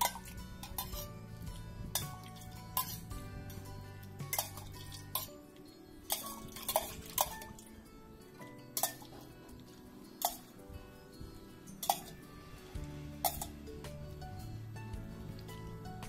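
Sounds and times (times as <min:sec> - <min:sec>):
metal ladle clinking on pot: 0:00.0 - 0:01.2, 0:01.9 - 0:05.4, 0:06.0 - 0:07.7, 0:08.8 - 0:09.3, 0:10.2 - 0:10.5, 0:11.8 - 0:12.2, 0:13.2 - 0:13.6
background music: 0:00.0 - 0:16.0.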